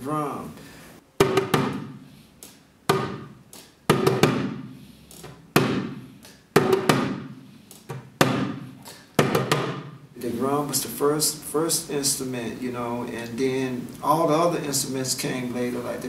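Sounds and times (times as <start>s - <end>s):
hand drum played with hands: 6.6s - 7.0s.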